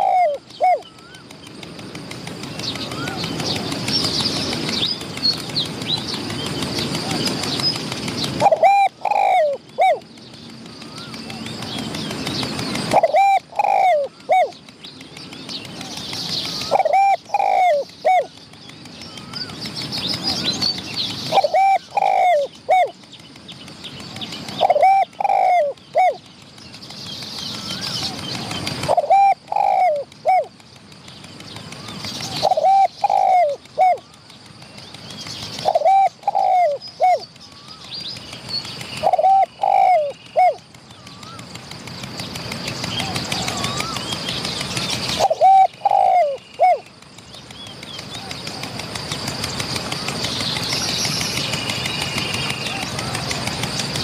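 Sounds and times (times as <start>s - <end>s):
dove cooing: 0.0s - 1.3s, 2.7s - 4.5s, 8.2s - 10.0s, 12.6s - 14.6s, 15.8s - 18.4s, 21.3s - 23.0s, 24.1s - 26.2s, 27.6s - 30.6s, 31.7s - 34.1s, 35.6s - 38.0s, 39.0s - 41.6s, 42.8s - 44.1s, 45.0s - 46.9s.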